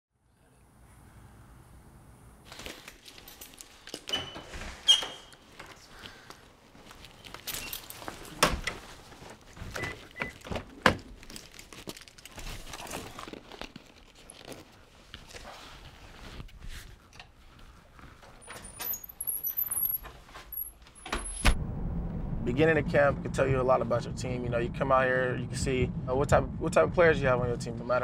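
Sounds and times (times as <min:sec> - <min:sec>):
metal screen door opening: 0:04.0 - 0:05.5, 0:07.4 - 0:08.8, 0:18.3 - 0:21.6
faint high squeaks: 0:04.1 - 0:05.5, 0:18.4 - 0:21.4
backpack rustling: 0:05.4 - 0:20.7.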